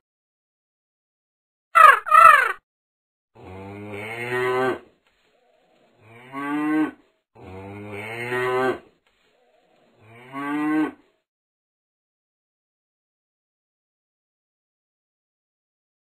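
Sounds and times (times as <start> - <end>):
cattle mooing: 3.4 - 4.8, 6.0 - 8.8, 10.0 - 11.0.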